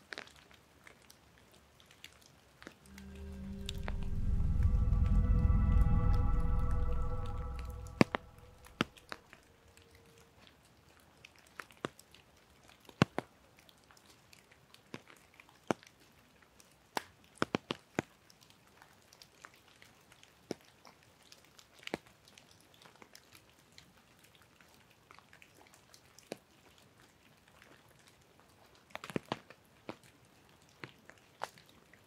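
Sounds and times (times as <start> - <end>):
faint hiss of rain: 0.0 - 32.0.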